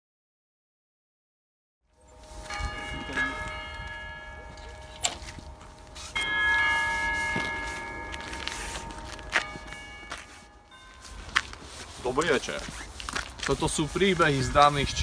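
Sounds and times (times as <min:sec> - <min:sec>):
bell ringing: 0:02.0 - 0:12.6
footsteps crunching in snow: 0:02.0 - 0:15.0.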